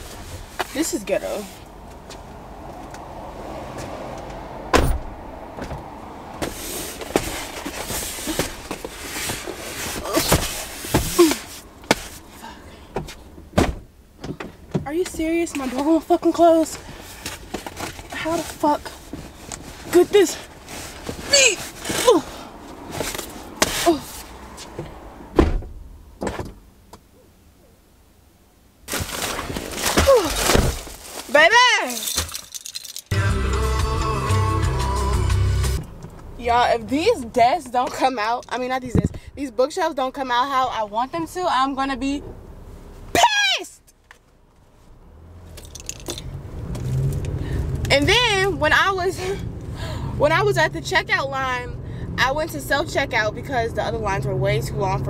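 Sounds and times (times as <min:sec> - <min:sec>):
car door heavy thump: 0:04.7 - 0:05.8, 0:13.0 - 0:14.5, 0:25.3 - 0:26.6
cardboard scraping against seats: 0:06.4 - 0:12.4, 0:16.6 - 0:24.8, 0:28.9 - 0:31.6.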